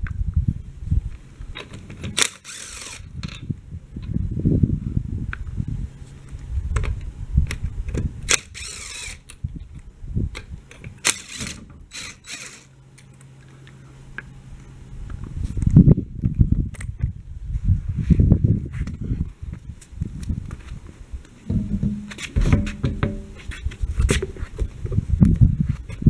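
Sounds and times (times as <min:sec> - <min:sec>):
power ratchet motor humming: 0:02.2 - 0:03.1, 0:08.3 - 0:09.3, 0:11.1 - 0:12.7.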